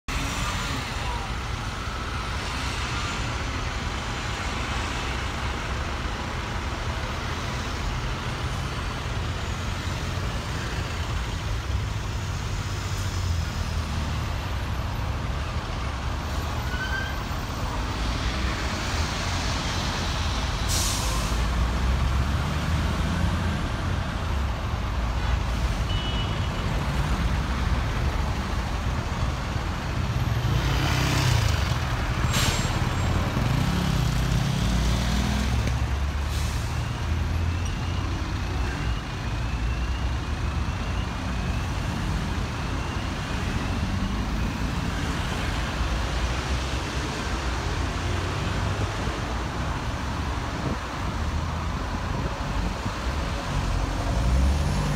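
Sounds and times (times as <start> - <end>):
engines idling in traffic: 0.1 - 54.9
bus air brakes hissing: 20.4 - 21.6, 32.1 - 33.2, 36.1 - 37.1.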